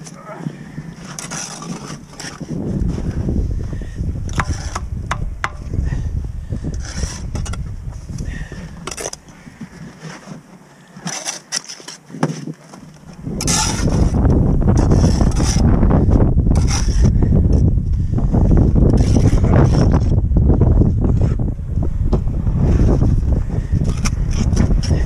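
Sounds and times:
trowel scraping mortar: 0.9 - 2.6, 4.3 - 5.6, 6.7 - 7.7, 8.8 - 9.3, 9.9 - 17.6, 18.8 - 20.2, 23.6 - 25.0
low rumble: 2.5 - 8.9, 13.2 - 25.0
trowel tapping concrete blocks: 4.3 - 5.6.

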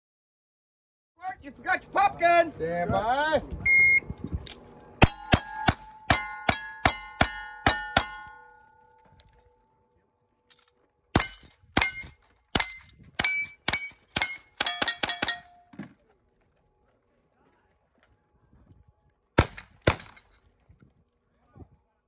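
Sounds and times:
steel plate ringing: 5.0 - 9.1, 11.2 - 15.7
gunshots: 19.4 - 20.2.

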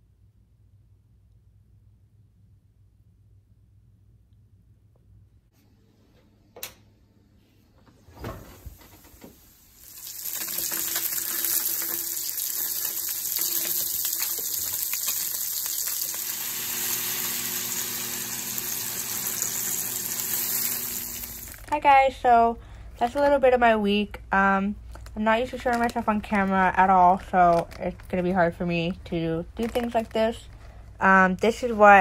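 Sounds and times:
fish sizzling in hot oil: 9.5 - 21.6.

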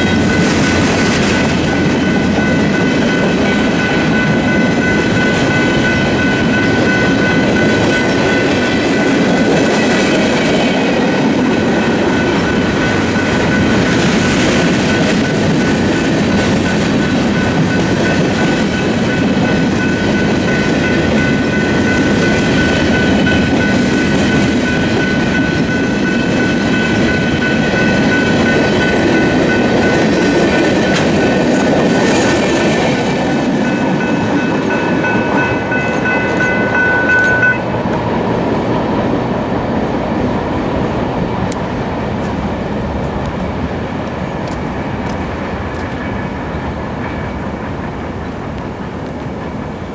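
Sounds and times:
crossing bells ringing: 0.0 - 37.9
freight train rolling: 0.0 - 49.9.

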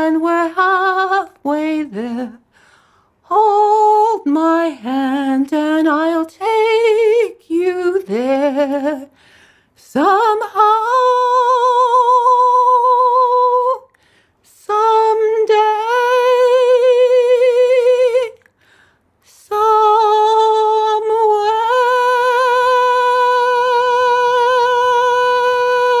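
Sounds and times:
woman singing a cappella: 0.0 - 26.0
singer breathing: 2.4 - 3.2, 9.1 - 9.8, 13.9 - 14.5, 18.4 - 19.2.

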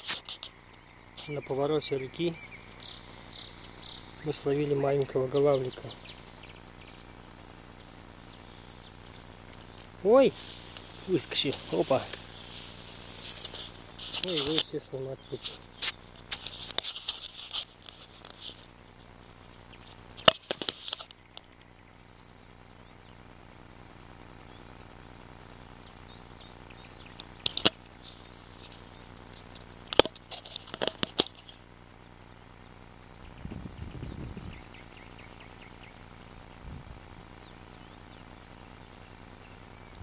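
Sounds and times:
faint high chirps: 0.2 - 14.4.

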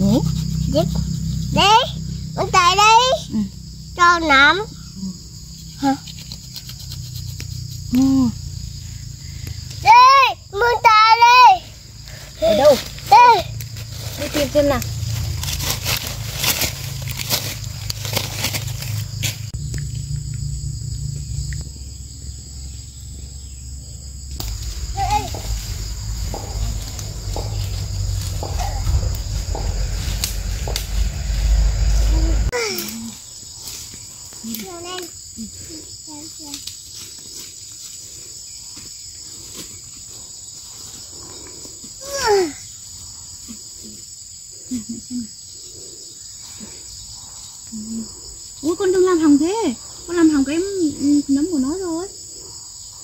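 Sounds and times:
insects chorus: 0.0 - 53.0
rustling: 11.7 - 19.6, 24.3 - 34.5
low rumble: 13.6 - 32.6
short low sounds: 24.4 - 32.5.

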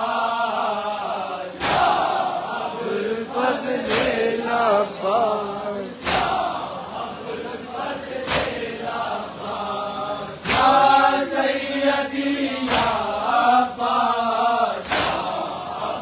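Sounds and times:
men chanting a lament: 0.0 - 16.0
chest-beating slaps: 1.6 - 2.0, 3.8 - 4.2, 6.0 - 6.5, 8.2 - 8.6, 10.4 - 10.9, 12.7 - 13.0, 14.8 - 15.3.

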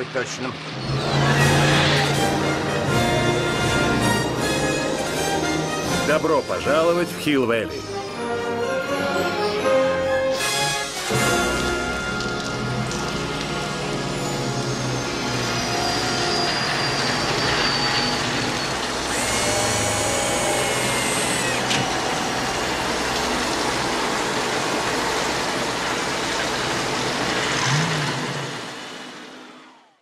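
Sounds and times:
mechanical hum with high whines: 0.0 - 5.1, 13.5 - 30.0
hissing rush: 16.5 - 27.3.

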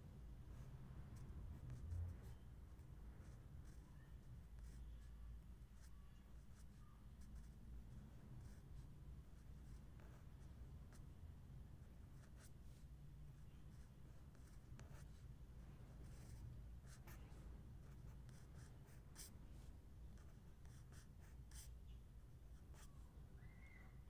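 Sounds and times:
marker pen scratching on paper: 3.2 - 5.0, 12.2 - 12.8, 13.7 - 15.2, 16.0 - 21.7, 22.6 - 22.9.

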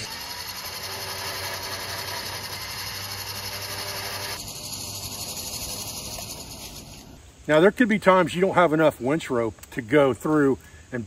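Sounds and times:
electric winch grinding: 0.0 - 7.2.

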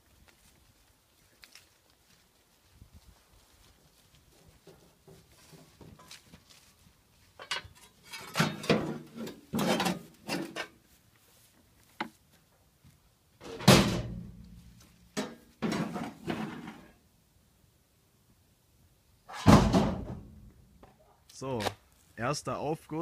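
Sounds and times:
stones and metal clattering: 7.4 - 10.7.

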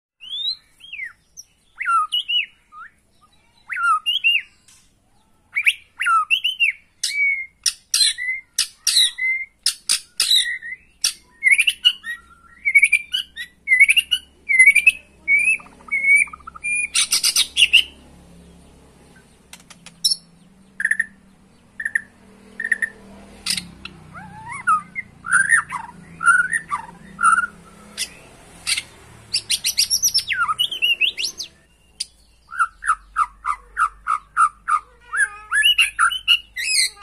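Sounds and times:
songbird whistling and clicking: 5.6 - 14.9, 19.5 - 21.1, 24.2 - 34.8.

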